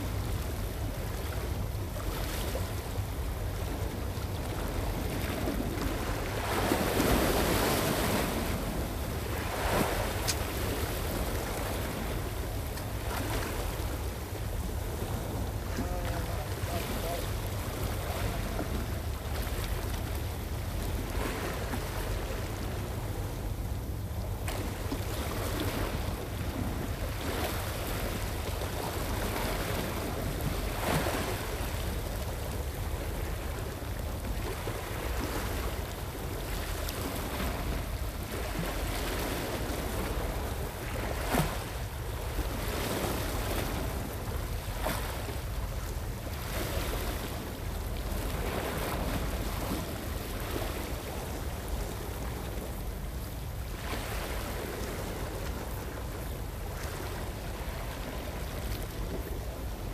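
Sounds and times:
waves washing on rocks: 0:03.5 - 0:19.9.

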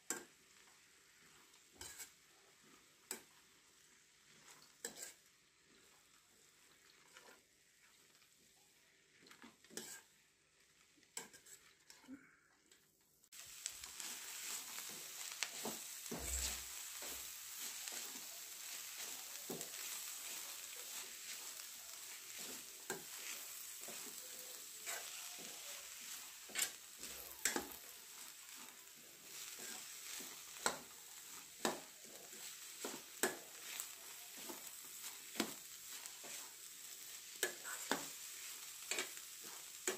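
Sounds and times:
greens sizzling in a pan: 0:00.0 - 0:12.2, 0:13.2 - 0:39.9
spoon scraping and clinking on pan: 0:01.7 - 0:02.2, 0:04.4 - 0:05.3, 0:09.3 - 0:10.1, 0:11.2 - 0:12.1, 0:13.9 - 0:18.3, 0:19.0 - 0:27.8, 0:29.3 - 0:30.9, 0:38.8 - 0:39.9.

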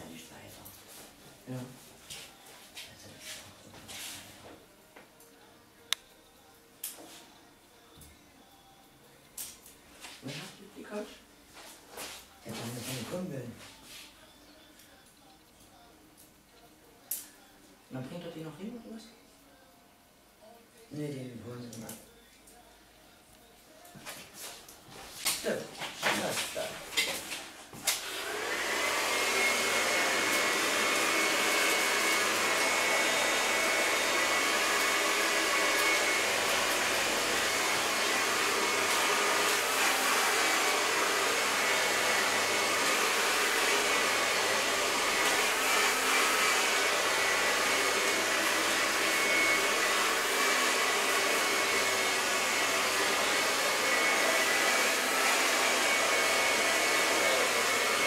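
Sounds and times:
hair dryer running: 0:27.8 - 0:58.0.

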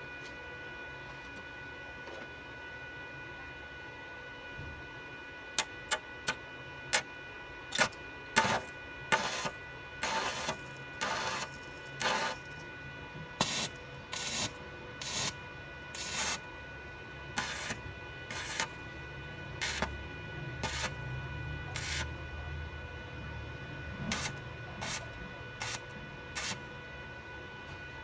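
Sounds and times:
welding arc crackling: 0:07.7 - 0:12.5, 0:13.4 - 0:15.4, 0:16.0 - 0:16.4, 0:17.4 - 0:18.8, 0:19.6 - 0:20.0, 0:20.6 - 0:21.0, 0:21.7 - 0:22.1, 0:24.1 - 0:25.0, 0:25.6 - 0:25.8, 0:26.4 - 0:26.6.

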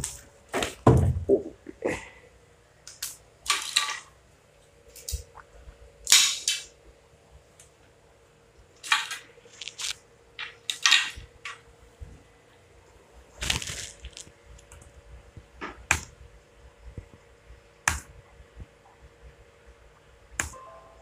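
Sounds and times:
faint steady hum: 0:00.0 - 0:21.0
fishing rod clicks and rustles: 0:08.8 - 0:11.6.

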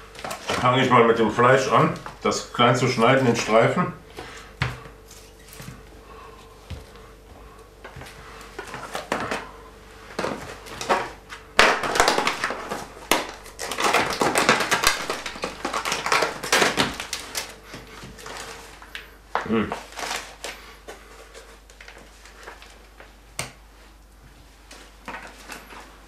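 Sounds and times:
plastic packaging crackling: 0:10.2 - 0:23.0.

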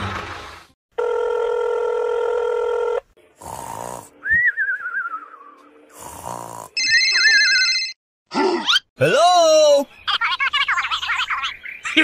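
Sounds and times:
phone ringtone: 0:01.0 - 0:03.0, 0:06.8 - 0:08.0
phone calling tone: 0:01.0 - 0:03.1
cartoon snoring sound effect: 0:03.4 - 0:04.2, 0:05.9 - 0:06.8.

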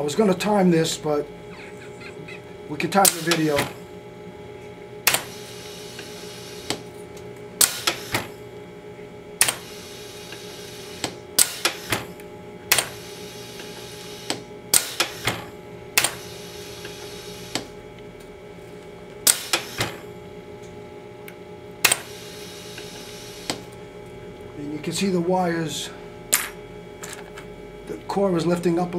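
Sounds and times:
steady motor hum: 0:00.0 - 0:28.9
sharp mechanical clacks: 0:03.0 - 0:03.8, 0:07.6 - 0:08.3, 0:14.3 - 0:16.3, 0:21.8 - 0:22.1.

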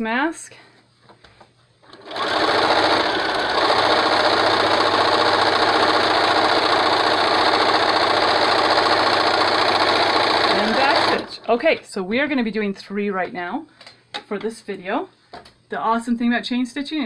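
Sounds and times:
electric sewing machine running: 0:01.8 - 0:11.5.

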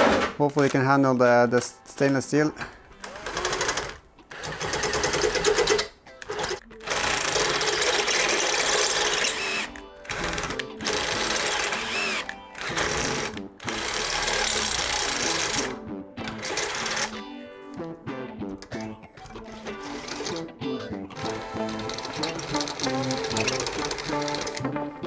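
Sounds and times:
cordless drill boring into steel: 0:03.0 - 0:05.6, 0:06.4 - 0:15.7.

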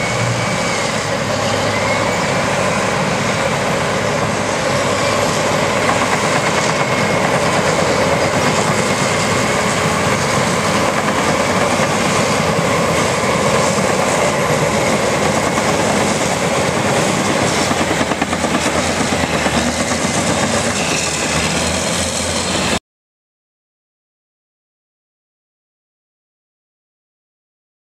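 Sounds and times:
heavy diesel machinery working: 0:00.0 - 0:22.8.

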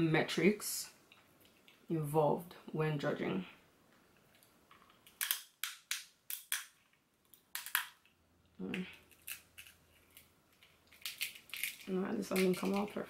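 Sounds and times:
crab shells cracking: 0:04.3 - 0:13.0.

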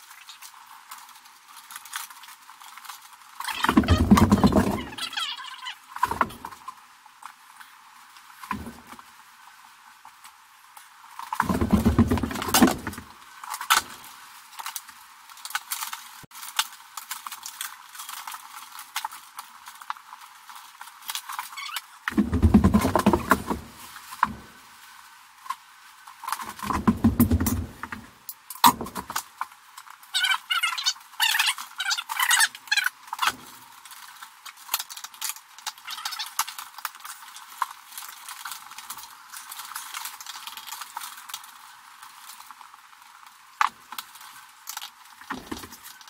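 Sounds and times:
cables rustling and clicking: 0:00.0 - 0:46.0
low bumping and rumbling: 0:22.1 - 0:24.6, 0:26.6 - 0:28.1.

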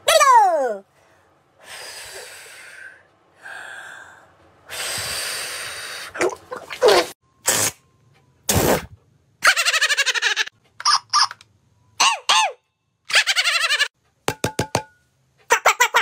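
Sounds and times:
voiced gasps: 0:00.9 - 0:06.2.

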